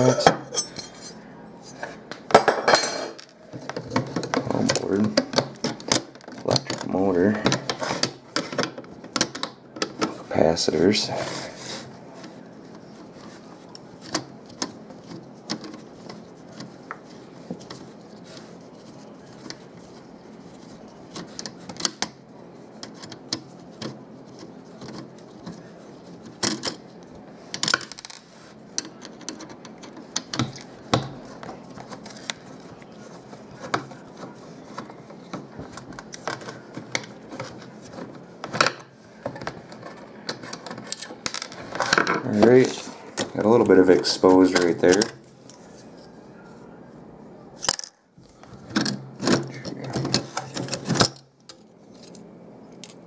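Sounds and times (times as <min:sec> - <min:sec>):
screwdriver on metal clicks and scrapes: 0:44.4 - 0:45.6.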